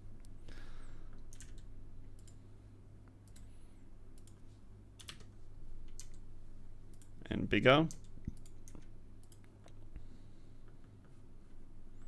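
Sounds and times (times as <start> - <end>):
faint low hum: 0.0 - 12.0
computer keyboard keys clicking: 1.3 - 2.4, 5.0 - 5.3, 5.9 - 6.2, 7.8 - 9.5.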